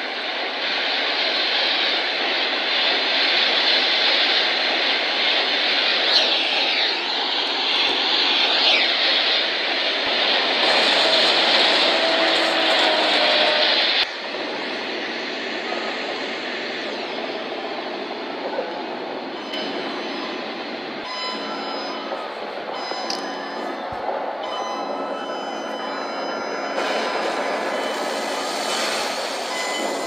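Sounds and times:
loud rushing noise: 0.0s - 18.2s, 26.8s - 30.0s.

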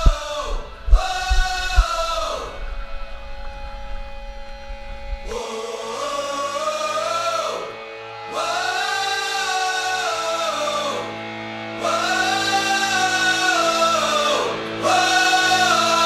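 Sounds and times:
sustained instrumental tones: 0.0s - 5.4s.

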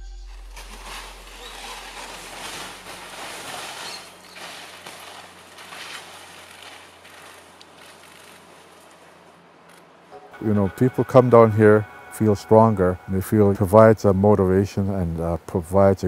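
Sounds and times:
low note: 0.0s - 3.4s, 10.1s - 14.8s
skis swishing through snow: 0.3s - 9.3s.

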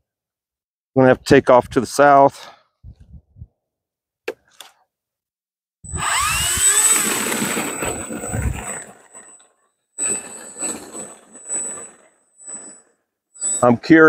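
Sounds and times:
electric motor whine: 5.9s - 9.4s.

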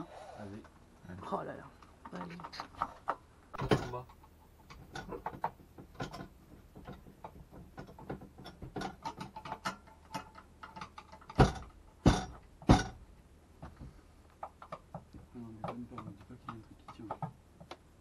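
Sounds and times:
loud knocks: 11.3s - 14.0s.

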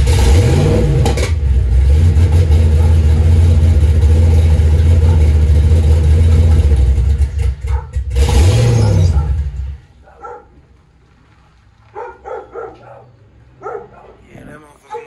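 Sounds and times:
car engine running: 0.0s - 9.9s
engine revving: 0.0s - 9.9s.

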